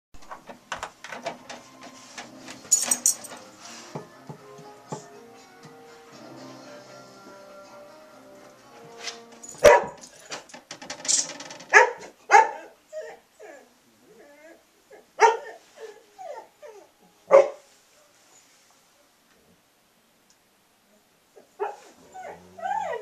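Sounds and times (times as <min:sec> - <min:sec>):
dog barking: 0:09.6 - 0:10.0, 0:11.7 - 0:12.7, 0:15.2 - 0:15.6, 0:17.3 - 0:17.6, 0:21.5 - 0:21.9
dog whining: 0:11.7 - 0:17.6, 0:21.4 - 0:23.0.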